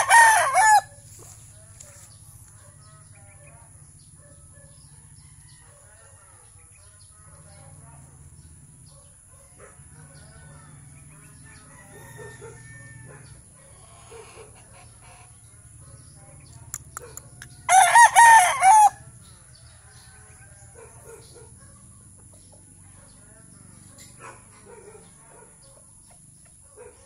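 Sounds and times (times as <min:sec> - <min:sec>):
rooster crowing: 0:00.0 - 0:01.0, 0:10.0 - 0:13.4, 0:17.7 - 0:21.0
faint clucks and chirps: 0:00.8 - 0:17.7, 0:19.0 - 0:27.0.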